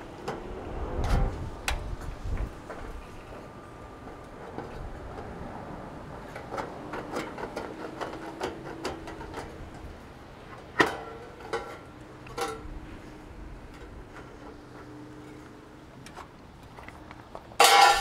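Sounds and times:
sheet metal clanking and ringing: 17.6 - 18.0.

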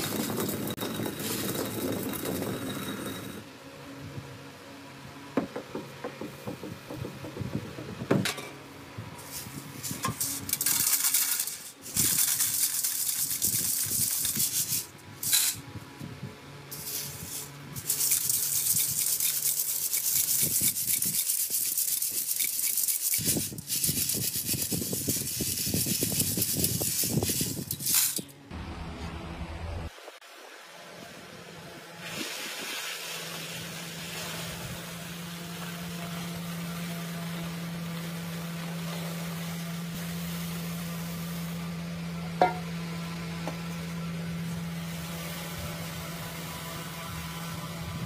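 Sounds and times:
dry lentils rattling in metal sieve: 0.0 - 3.1, 9.2 - 15.6, 16.7 - 28.3.

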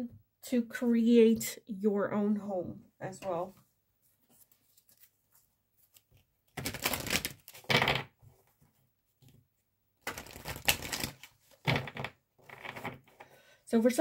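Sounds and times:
cards being shuffled: 4.2 - 8.1, 10.0 - 13.2.

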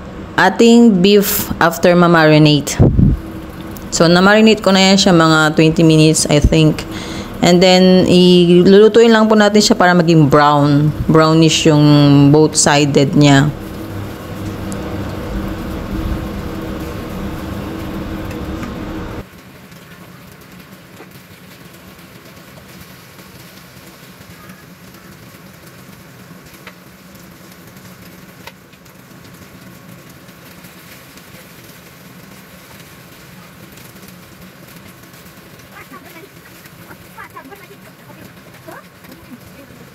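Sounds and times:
steady low hum: 0.0 - 19.3
meat sizzling in a frying pan: 19.2 - 39.9.

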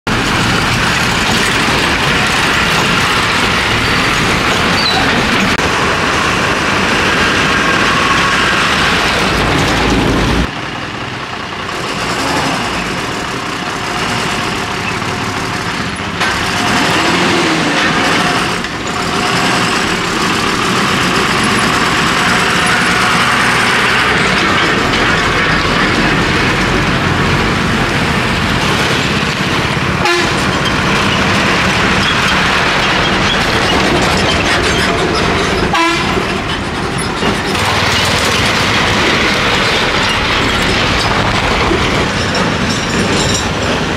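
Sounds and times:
diesel bus engine and tyre noise: 0.0 - 43.9
bus horn: 30.0 - 30.6, 35.6 - 36.4.

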